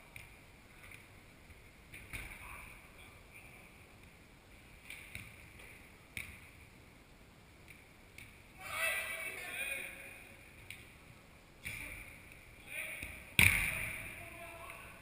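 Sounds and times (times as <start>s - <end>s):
indoor sports hall background: 0.0s - 15.0s
football striking boards: 12.9s - 14.1s.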